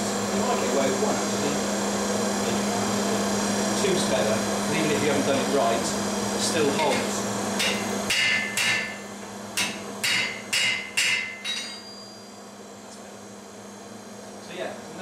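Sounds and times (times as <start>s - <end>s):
hammer striking metal on anvil: 7.6s - 9.0s, 9.6s - 11.9s.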